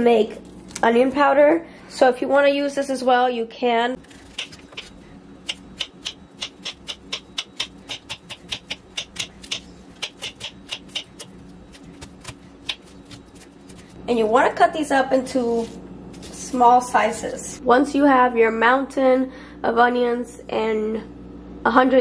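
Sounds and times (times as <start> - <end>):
knife chopping on wooden board: 4.3 - 13.8.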